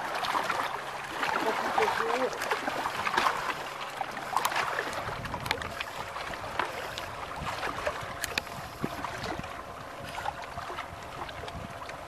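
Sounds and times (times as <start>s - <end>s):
water lapping against rocks: 0.0s - 12.0s
wind on microphone: 4.9s - 12.0s.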